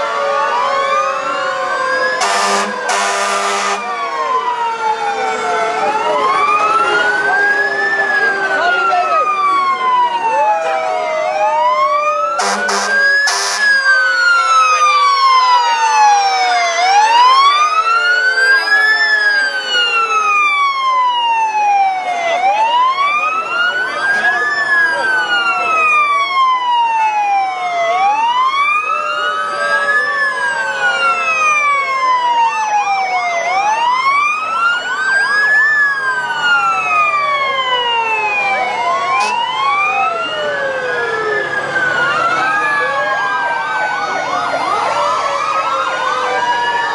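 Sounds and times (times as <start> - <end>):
fire engine sirens wailing: 0.0 - 46.9
low falling siren tone: 0.0 - 46.9
horn blasts: 2.2 - 3.9, 12.4 - 13.8.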